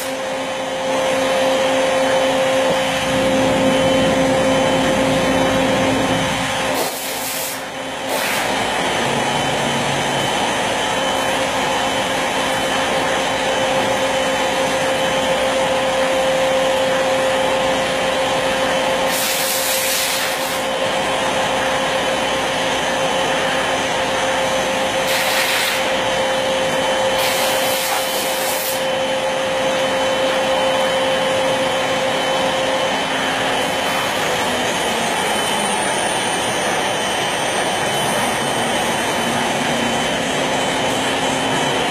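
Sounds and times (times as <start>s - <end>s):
wood router whining: 0.0s - 41.9s
router hissing: 6.0s - 10.9s.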